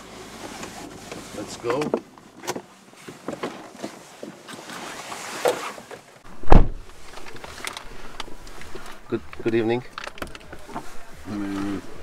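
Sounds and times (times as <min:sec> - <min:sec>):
knocks and rustling: 0:00.5 - 0:11.0
car door latch click: 0:06.4 - 0:06.8
car door thump: 0:06.4 - 0:07.0.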